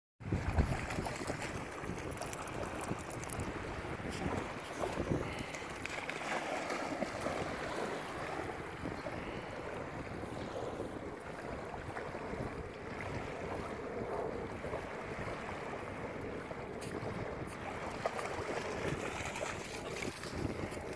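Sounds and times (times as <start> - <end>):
waves lapping on shore: 0.2 - 20.9
wind buffeting microphone: 0.2 - 20.9
dog splashing through water: 4.3 - 8.4, 17.6 - 20.9.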